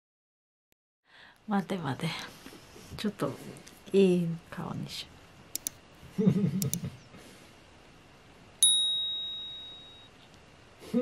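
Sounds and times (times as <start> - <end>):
mouse clicks: 5.6 - 5.8, 6.6 - 6.8
notification bell ding: 8.6 - 10.2.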